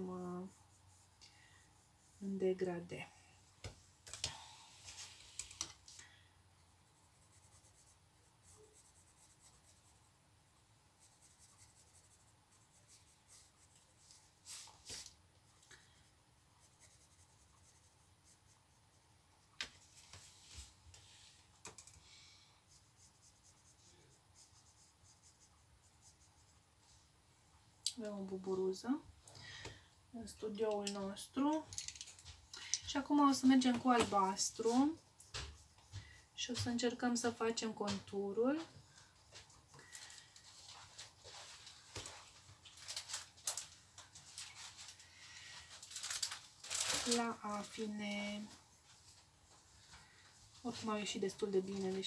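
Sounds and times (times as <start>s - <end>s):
coloured pencils scratching on paper: 0.0s - 3.1s, 6.7s - 10.2s, 10.9s - 21.8s, 22.6s - 26.6s, 32.8s - 43.2s, 45.8s - 50.0s, 50.6s - 52.0s.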